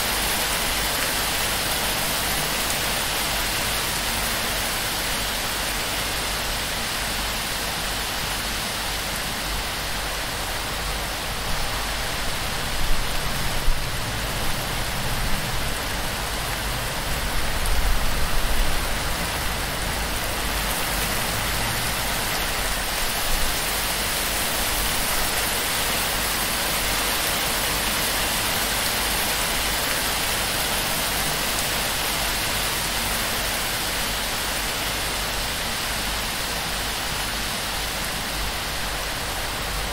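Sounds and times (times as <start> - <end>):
heavy rain on thatch roof: 0.0 - 39.9.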